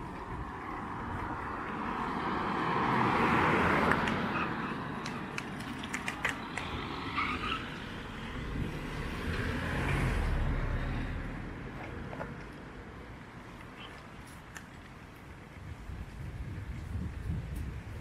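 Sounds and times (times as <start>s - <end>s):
car passing close by: 0.8s - 5.3s, 6.4s - 11.8s
sharp clicks: 5.0s - 6.8s.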